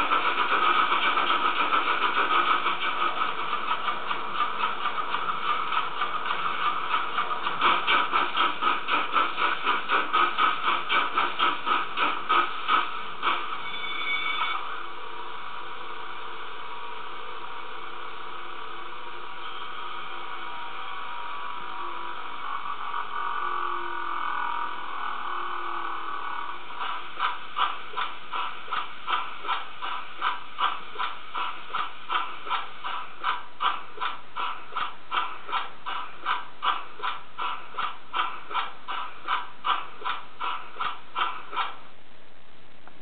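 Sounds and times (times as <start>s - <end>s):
locomotive exhaust chuffs: 0.0s - 14.7s, 19.2s - 42.0s
steam hiss: 0.0s - 16.2s, 26.1s - 42.0s.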